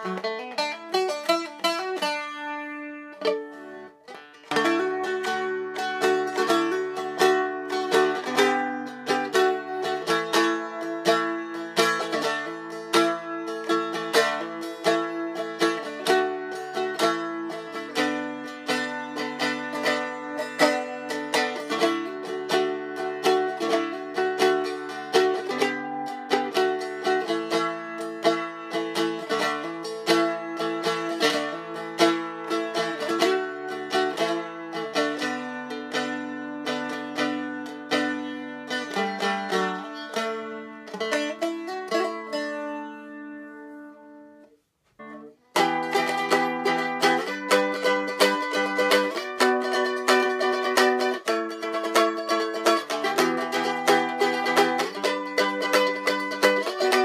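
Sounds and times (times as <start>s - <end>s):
stick dulcimer strummed: 0.0s - 57.0s.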